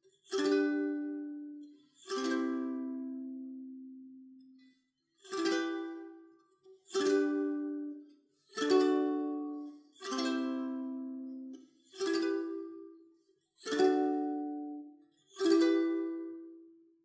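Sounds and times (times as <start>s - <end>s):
ukulele strummed chords: 0.3s - 1.5s, 2.1s - 4.0s, 5.2s - 6.2s, 6.9s - 8.0s, 8.6s - 12.9s, 13.6s - 14.8s, 15.4s - 16.7s.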